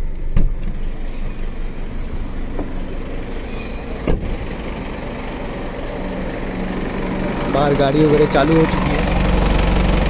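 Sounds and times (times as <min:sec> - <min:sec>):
diesel engine idling: 0:00.0 - 0:10.0
thump: 0:04.0 - 0:04.3.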